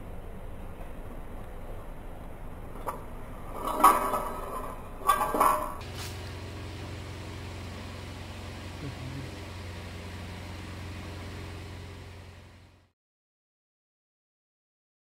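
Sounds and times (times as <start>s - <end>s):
low steady hum: 0.0s - 12.9s
metal clattering on tiled floor: 2.7s - 6.1s.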